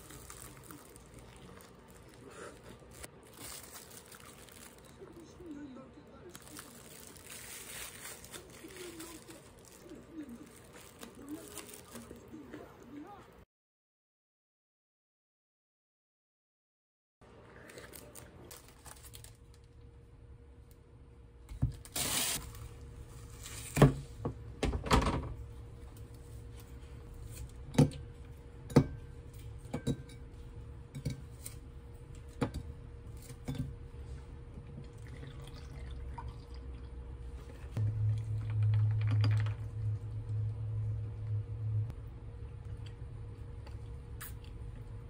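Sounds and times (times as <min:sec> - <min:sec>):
low hum: 0:25.3 - 0:45.0
liquid pouring over ice: 0:34.9 - 0:36.8.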